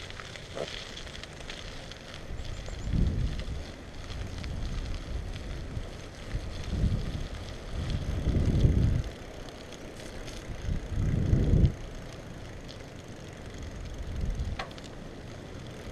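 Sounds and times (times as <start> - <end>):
wind buffeting microphone: 2.1 - 9.3, 9.9 - 12.0, 13.4 - 14.8.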